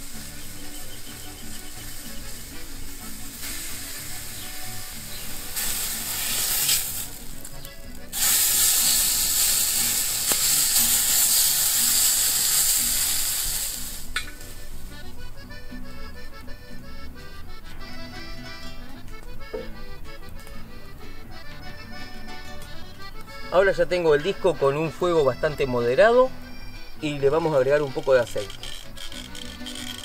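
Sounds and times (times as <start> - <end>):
steak sizzling: 0.0 - 15.5, 26.5 - 30.0.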